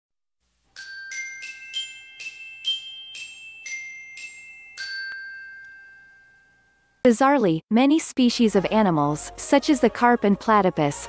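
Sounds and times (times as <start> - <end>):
bright mallet percussion jingle: 0.7 - 7.0.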